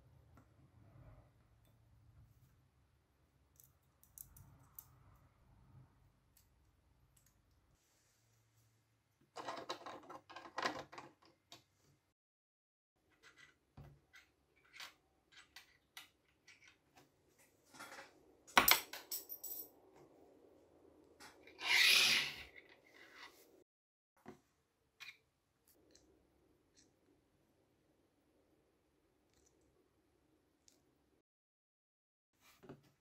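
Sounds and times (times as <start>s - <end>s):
metal scrape: 21.2s - 23.6s.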